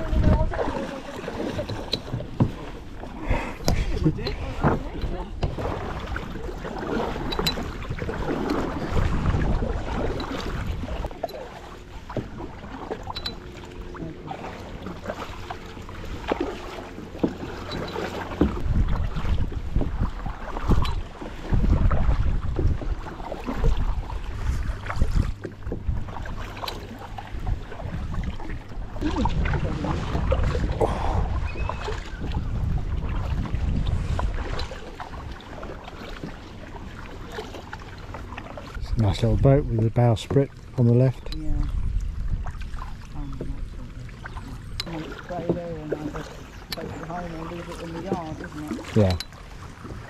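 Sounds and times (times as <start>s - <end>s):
wind rumbling on microphone: 0.0s - 11.2s, 17.9s - 35.6s, 41.2s - 50.0s
paddles splashing in water: 0.0s - 50.0s
water sloshing at hull: 0.0s - 50.0s.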